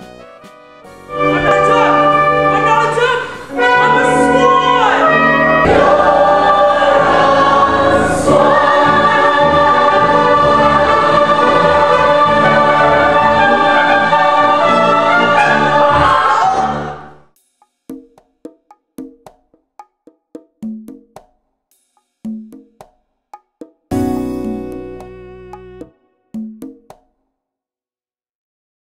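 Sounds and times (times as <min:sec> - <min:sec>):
cast singing in chorus: 0:03.5 - 0:17.2.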